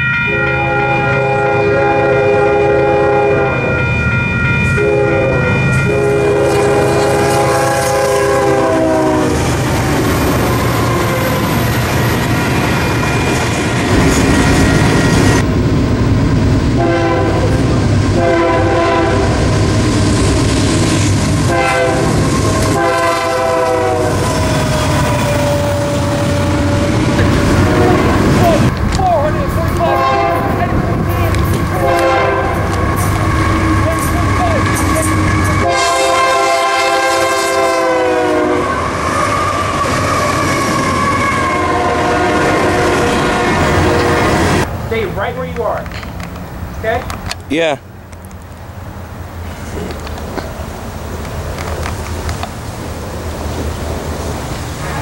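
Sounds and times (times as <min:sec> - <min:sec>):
train horn blasts: 0:00.0 - 0:09.5, 0:10.4 - 0:11.6, 0:16.8 - 0:19.5, 0:21.4 - 0:28.7, 0:29.3 - 0:44.7
train rumbling past: 0:00.0 - 0:55.0.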